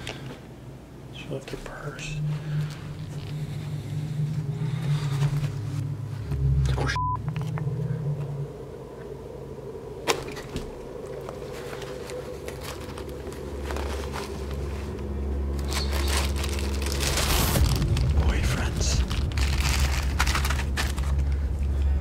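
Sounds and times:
low steady hum: 0.0 - 22.0
plastic bag crinkling: 11.0 - 22.0.

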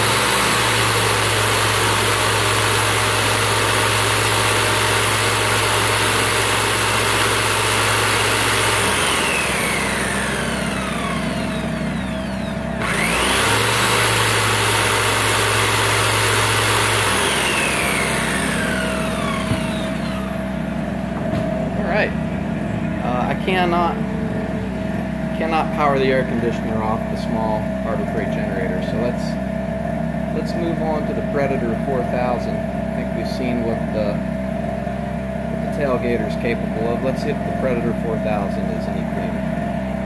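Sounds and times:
jigsaw running: 0.0 - 20.6
generator engine running: 0.0 - 40.0.

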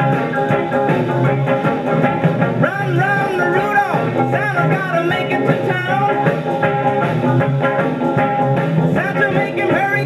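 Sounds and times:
guitar: 0.0 - 10.0
pop record on record player: 0.0 - 10.0
person singing: 2.6 - 6.3, 9.0 - 10.0.

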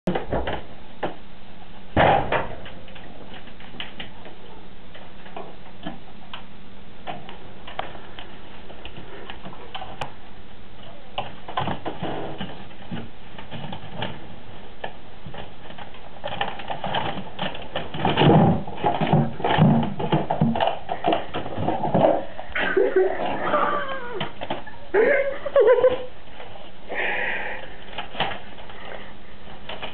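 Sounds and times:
knocking and rustling: 11.2 - 22.4.

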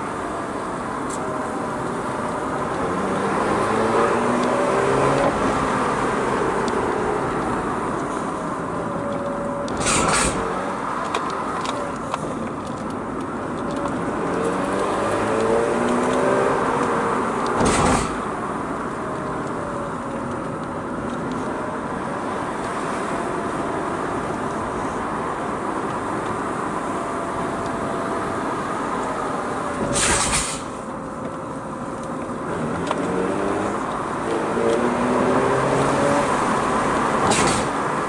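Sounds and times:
tyre and road noise: 0.0 - 38.0
car engine accelerating: 1.5 - 30.0, 32.2 - 38.0.

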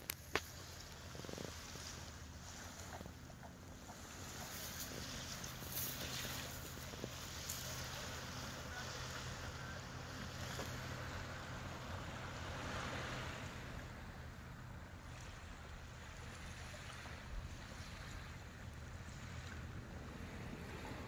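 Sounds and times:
low steady hum: 0.0 - 21.0
small waves on beach: 0.0 - 21.0
wind on microphone: 16.3 - 21.0.

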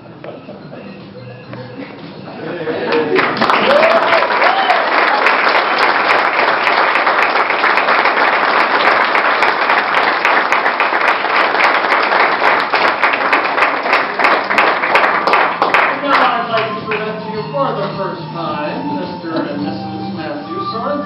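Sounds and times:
crowd applauding: 2.8 - 17.3.

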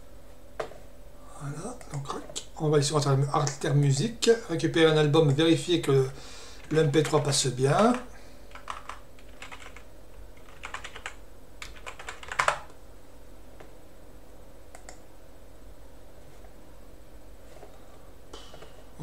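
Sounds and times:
faint steady hum: 0.0 - 19.0
keyboard typing: 7.9 - 12.8.

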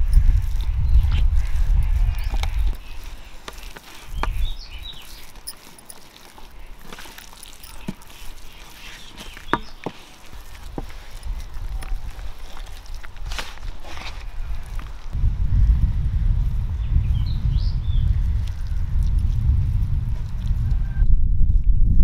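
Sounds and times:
handling clicks and knocks: 2.2 - 15.0.

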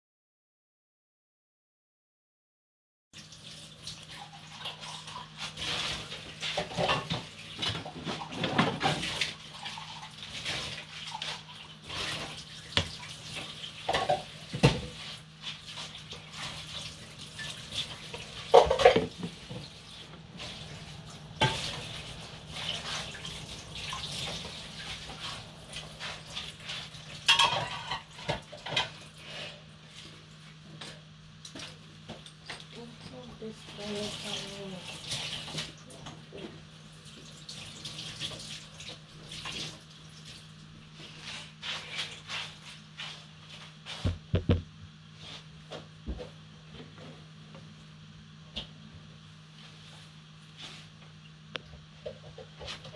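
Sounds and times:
dishes and pots clinking on worktop: 4.7 - 15.1, 17.4 - 19.8, 21.4 - 29.1, 52.0 - 52.9
steady low hum: 17.0 - 31.3
tap running: 17.3 - 28.9, 44.0 - 44.7.

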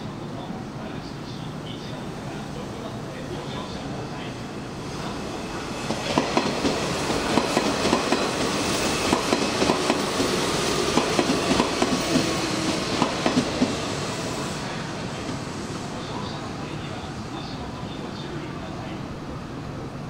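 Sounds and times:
train wheels clacking over rail joints: 5.9 - 13.8.

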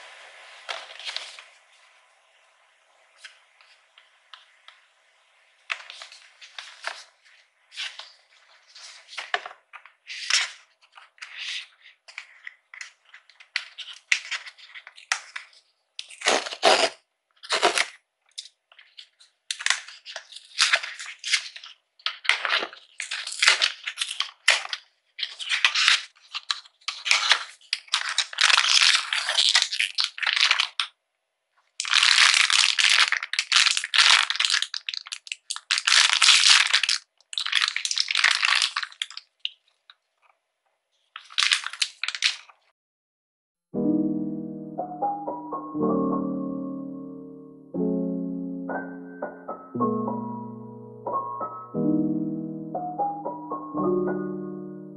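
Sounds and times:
foil bag crinkling and tearing: 0.6 - 1.6, 5.7 - 30.9, 31.7 - 40.3, 41.0 - 42.7
cardboard box tearing: 16.0 - 17.9.

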